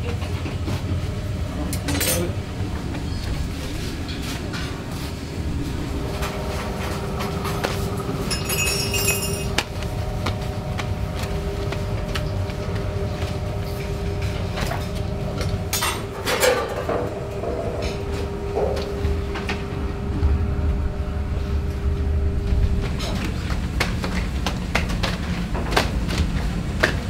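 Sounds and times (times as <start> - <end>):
low rumble with faint hum: 0.0 - 27.0
metal utensils clinking: 8.3 - 9.6.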